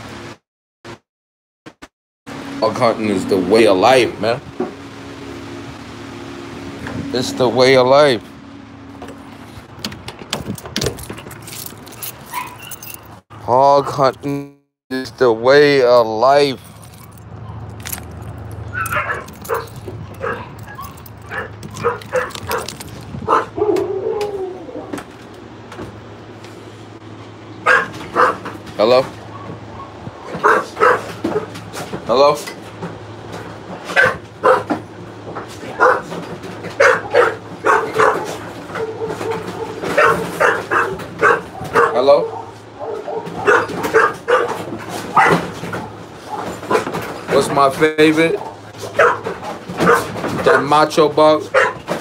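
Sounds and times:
dog barking and yipping: 11.9s - 13.2s, 18.6s - 24.1s, 27.6s - 28.6s, 29.3s - 31.6s, 33.8s - 34.8s, 35.6s - 47.0s, 48.3s - 50.8s, 51.4s - 52.0s.

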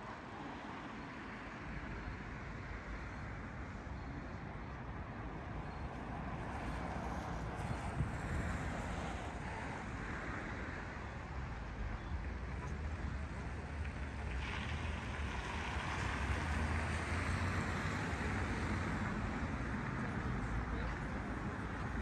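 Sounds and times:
traffic hum: 0.2s - 22.0s
wind rumble on microphone: 5.9s - 22.0s.

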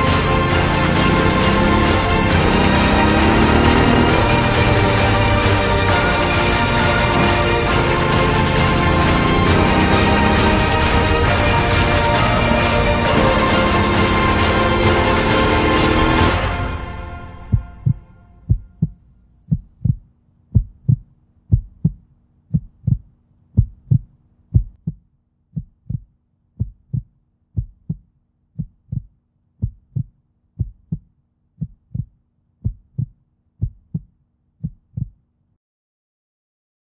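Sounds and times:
music: 0.0s - 19.0s
heartbeat thumps: 17.1s - 35.2s.

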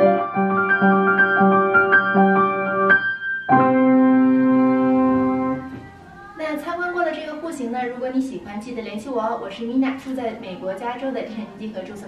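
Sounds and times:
grand piano playing: 0.0s - 6.0s.

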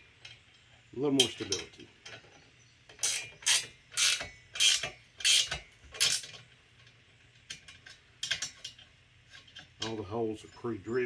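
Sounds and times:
ratchet wrench clicking: 3.0s - 6.4s.

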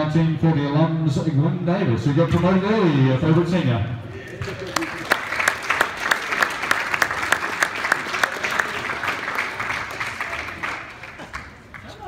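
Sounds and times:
crowd clapping: 4.3s - 12.0s.

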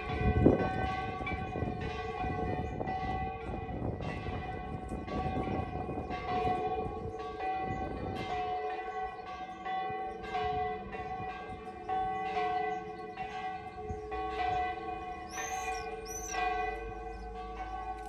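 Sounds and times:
church bells ringing: 0.0s - 18.0s.

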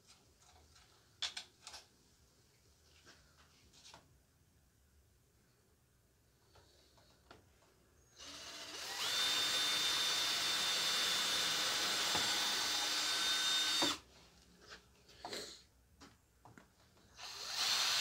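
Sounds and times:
power drill drilling wood: 8.2s - 14.0s, 17.2s - 18.0s.

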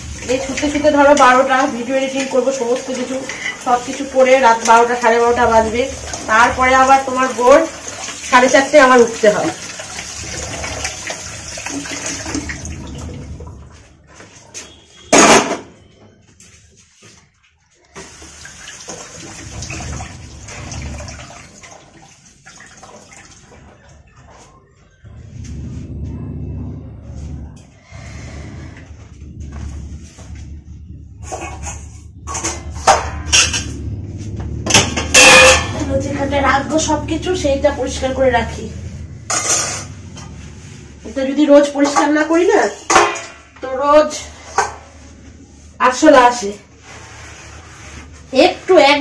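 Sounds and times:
metal dishes clanking: 34.7s - 36.3s, 39.2s - 40.3s, 42.8s - 43.5s.

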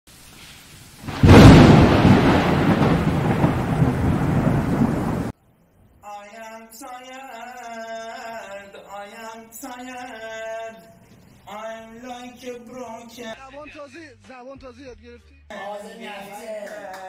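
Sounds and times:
thunder-like boom and rumble: 1.1s - 5.3s.

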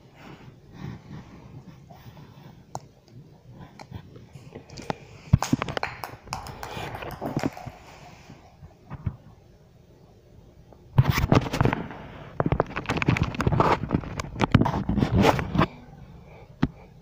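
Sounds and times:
plastic ball clattering on tile floor: 4.7s - 8.4s.

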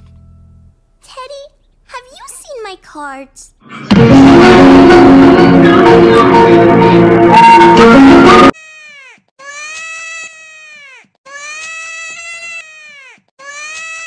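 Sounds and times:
loud music: 3.6s - 8.5s.

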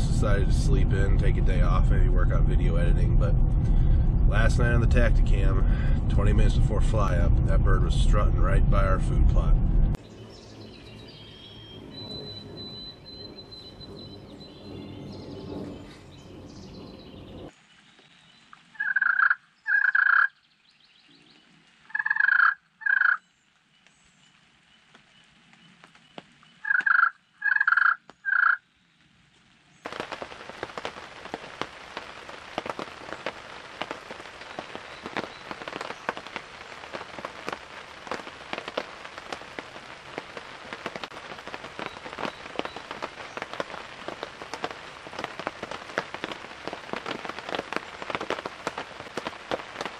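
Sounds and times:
steady rain: 0.0s - 19.7s, 20.5s - 27.4s, 28.1s - 49.9s
turkey gobbling: 18.8s - 20.3s.

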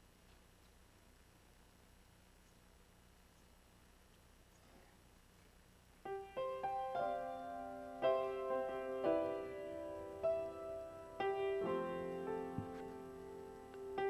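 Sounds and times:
slow piano chords ringing: 6.0s - 14.0s.

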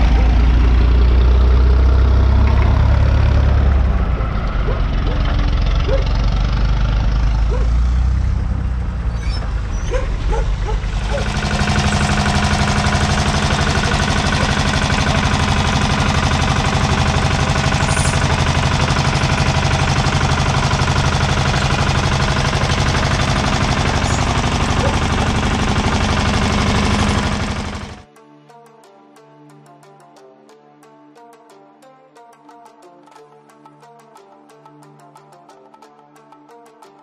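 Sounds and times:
tractor engine running: 0.0s - 28.1s.

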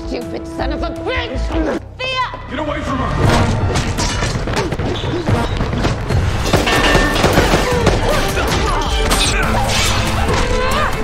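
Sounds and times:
dramatic action music: 0.0s - 11.0s
punches thuds and crashes: 3.3s - 10.6s.

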